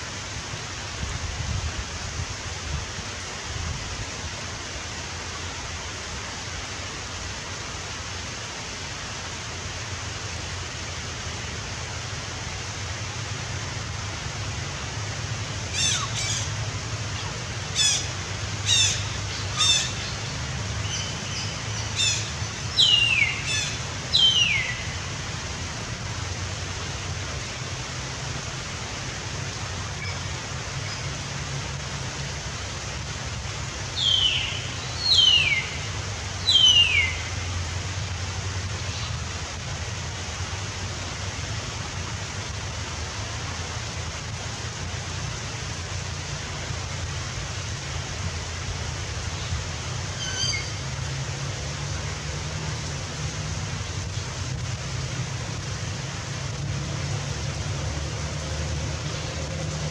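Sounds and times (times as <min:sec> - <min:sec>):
steady hiss: 0:00.0 - 0:59.9
bird calling: 0:15.7 - 0:16.5, 0:17.2 - 0:25.0, 0:34.0 - 0:37.3, 0:50.2 - 0:50.8.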